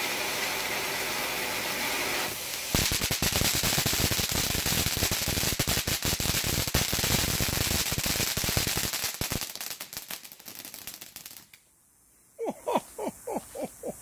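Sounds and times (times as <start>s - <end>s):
firework fountain hissing and crackling: 0.0s - 11.7s.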